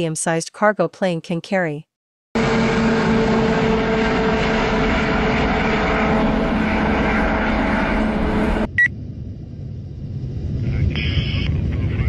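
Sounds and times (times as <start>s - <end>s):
jet engines droning: 2.4s - 12.0s.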